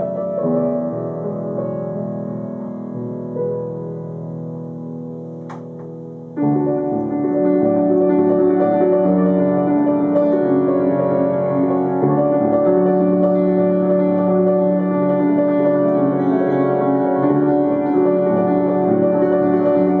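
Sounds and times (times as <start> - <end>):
grand piano playing: 0.0 - 20.0.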